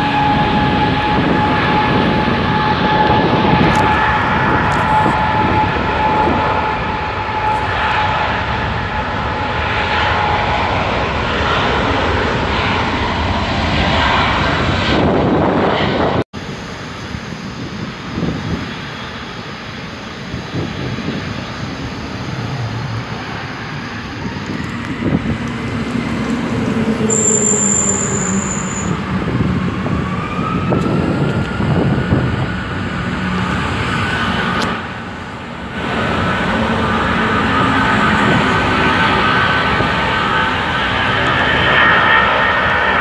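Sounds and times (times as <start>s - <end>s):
jet engines spooling up: 0.0s - 43.0s
road traffic passing: 20.2s - 43.0s.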